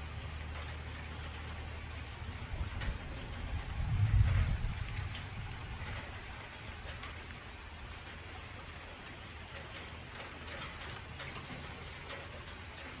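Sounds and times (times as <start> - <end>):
low steady rumble: 0.0 - 9.1
raindrop hits: 0.0 - 13.0
steady rain falling: 0.0 - 13.0.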